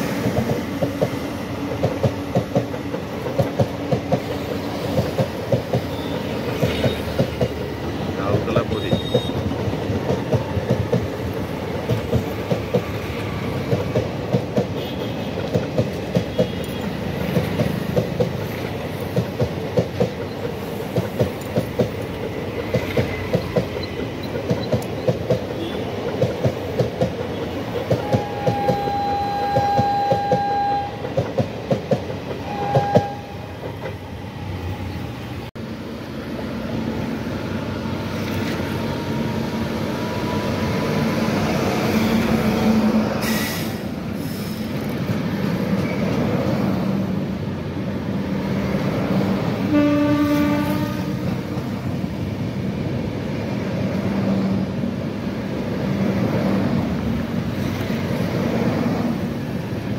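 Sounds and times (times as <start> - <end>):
train wheels clattering over rail joints: 0.0 - 28.9
approaching train rumble: 0.0 - 59.9
train horn blasts: 28.0 - 31.0, 32.4 - 33.6, 49.7 - 51.5.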